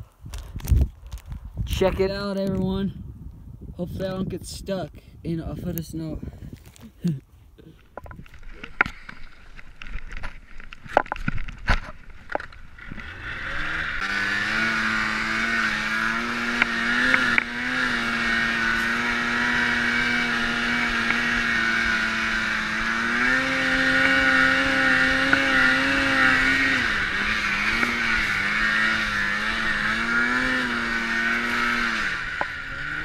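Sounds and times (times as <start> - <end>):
snowmobile engine revving: 12.2 - 33.0.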